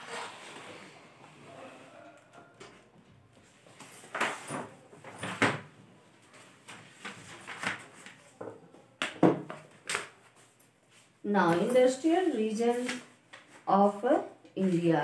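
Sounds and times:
paper map rustling and crackling: 0:03.3 - 0:08.5.

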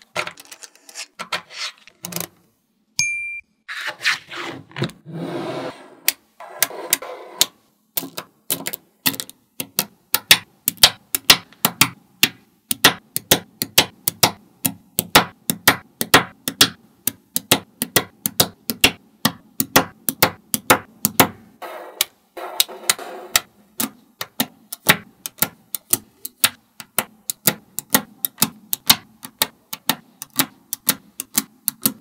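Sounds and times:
balls shifting with scraping rattle: 0:00.0 - 0:02.4
magnetic balls clicking: 0:21.9 - 0:32.0.

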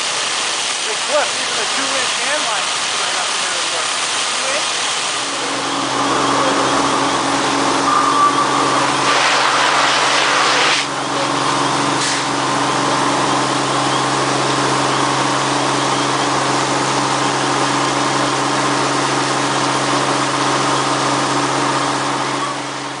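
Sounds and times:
fire truck engine running: 0:00.0 - 0:23.0
steady rushing hiss: 0:00.1 - 0:11.0.

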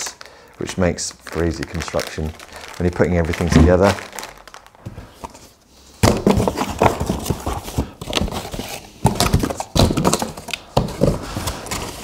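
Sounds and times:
rummaging in cardboard box: 0:05.1 - 0:12.0.

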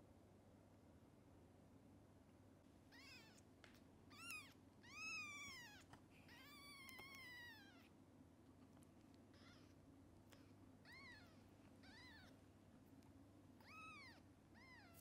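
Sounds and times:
kitten mewing: 0:02.9 - 0:03.4, 0:04.1 - 0:07.9, 0:09.3 - 0:12.4, 0:13.6 - 0:15.0.

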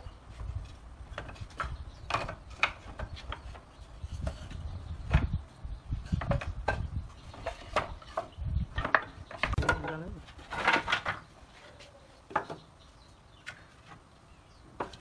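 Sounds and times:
wooden offcuts knocking together: 0:06.2 - 0:11.2.

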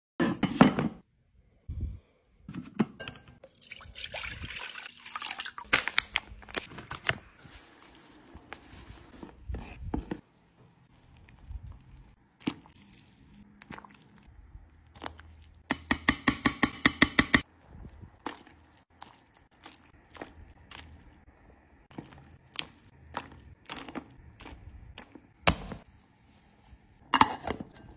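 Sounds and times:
liquid dripping and sloshing: 0:03.4 - 0:06.0, 0:10.8 - 0:15.7, 0:17.4 - 0:25.4.

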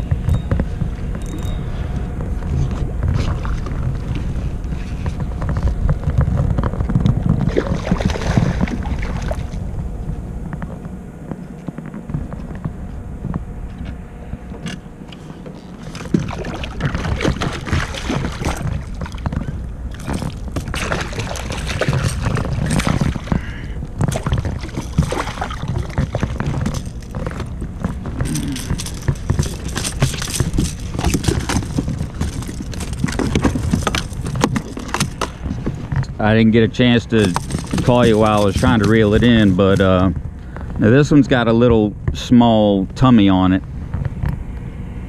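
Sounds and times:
fish splashing in water: 0:07.4 - 0:09.6, 0:15.8 - 0:26.6.

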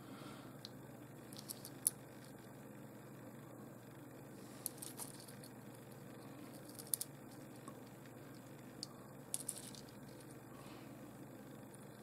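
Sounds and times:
faint steady hum: 0:00.0 - 0:12.0
stones tapping together: 0:06.6 - 0:07.9, 0:08.8 - 0:10.2.

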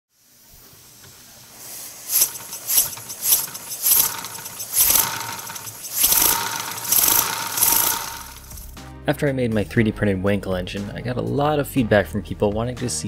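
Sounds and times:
air hissing: 0:00.2 - 0:08.8
sharp exhaust puffs: 0:00.3 - 0:08.8
thin whine: 0:01.8 - 0:08.7.

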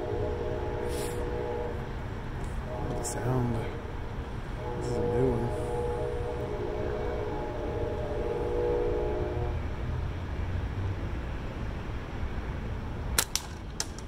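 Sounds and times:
low rumble: 0:00.0 - 0:08.6
distant train horn: 0:00.0 - 0:09.9.

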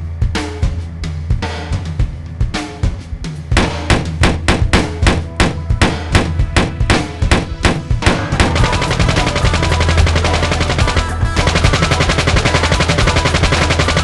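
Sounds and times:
gunshots: 0:03.6 - 0:14.0
rapid machine-gun fire: 0:03.6 - 0:14.0.

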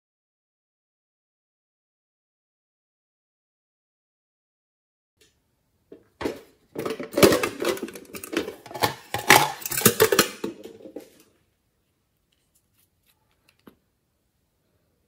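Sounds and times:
plastic case clicks and rattles: 0:06.2 - 0:11.2.

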